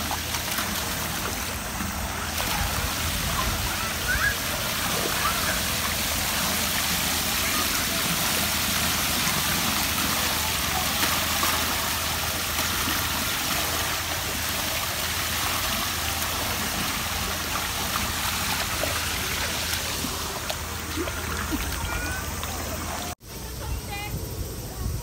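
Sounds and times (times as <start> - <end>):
water pouring and splashing: 0.0 - 23.2.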